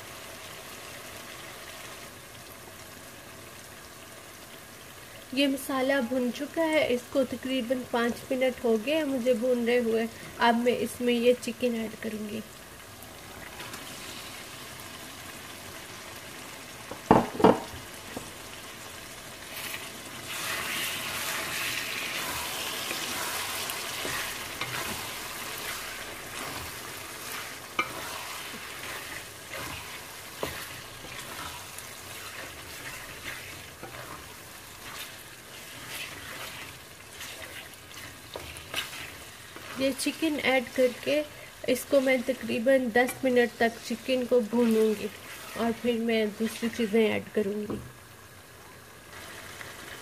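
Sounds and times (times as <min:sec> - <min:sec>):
chicken sizzling in a pot: 0:00.0 - 0:50.0
wooden spatula stirring: 0:19.5 - 0:47.0.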